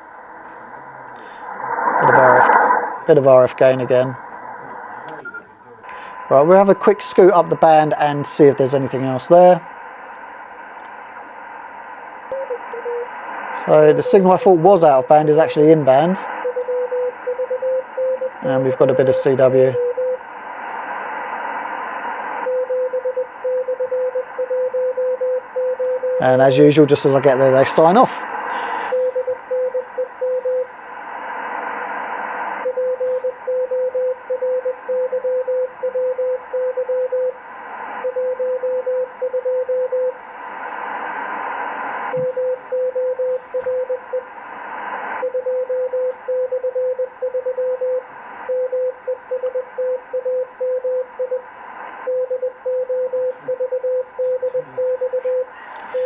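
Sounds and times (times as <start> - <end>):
radio band hiss: 0.0 - 17.2, 18.3 - 22.5, 26.2 - 29.2, 30.8 - 33.2, 37.4 - 38.0, 40.2 - 42.2, 44.2 - 45.2, 48.0 - 48.5, 51.4 - 52.1, 54.4 - 56.0
morse code tone: 52.1 - 56.0.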